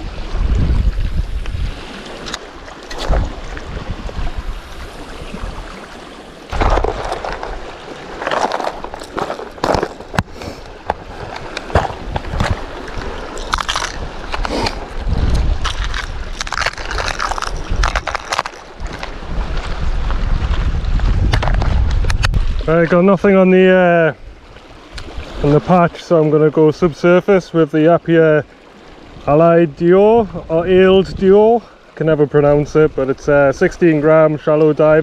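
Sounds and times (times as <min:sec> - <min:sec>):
wind buffeting microphone: 0:00.0 - 0:02.4, 0:03.0 - 0:05.8, 0:06.5 - 0:23.0
water lapping at rocks: 0:00.0 - 0:29.9
plastic lure box clattering: 0:08.2 - 0:10.3, 0:15.6 - 0:19.2.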